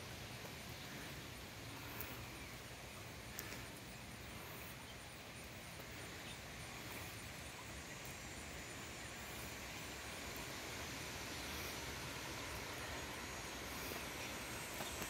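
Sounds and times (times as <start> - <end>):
steady low hiss: 0.0 - 15.0
high ticks: 3.3 - 4.0, 11.4 - 15.0.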